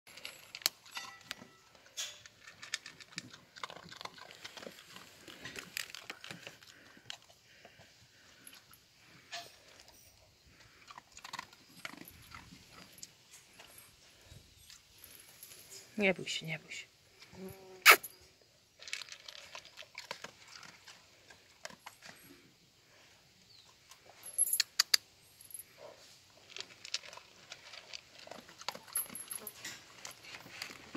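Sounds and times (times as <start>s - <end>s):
chain and metal bowl clinking: 0.1s - 7.3s, 8.1s - 16.0s, 23.9s - 25.9s, 26.5s - 30.9s
dog crunching dry kibble: 0.1s - 9.8s, 10.5s - 13.7s, 18.8s - 22.4s, 25.7s - 30.9s.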